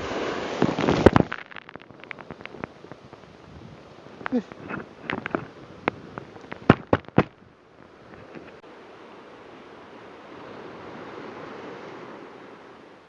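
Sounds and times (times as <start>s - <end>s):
surf washing over rocks: 0.0s - 13.0s
sharp clicks and knocks: 0.6s - 3.3s, 4.2s - 7.4s.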